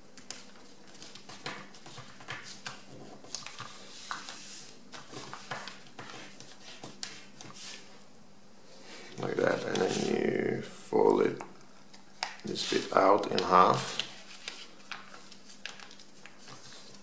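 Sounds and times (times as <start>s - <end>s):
paper rustling and crinkling: 0.2s - 7.9s, 9.1s - 10.2s, 11.9s - 17.0s.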